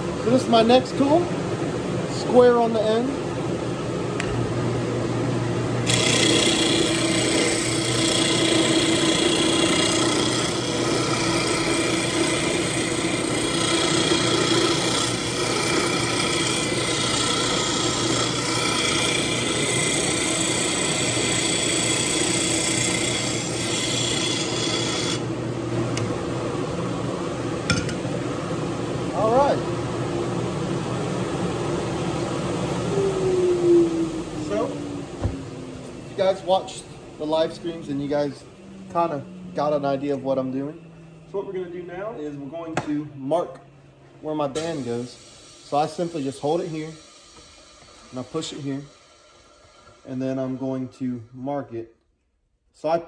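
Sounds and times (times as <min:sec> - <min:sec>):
motor hum: 0:00.0 - 0:42.7
turning tool scraping wood on lathe: 0:05.8 - 0:25.4, 0:47.0 - 0:51.0.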